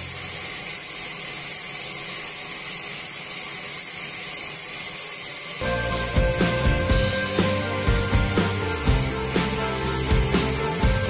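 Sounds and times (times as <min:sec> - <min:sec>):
steady high hiss: 0:05.3 - 0:11.0
background music with beat: 0:05.6 - 0:11.0.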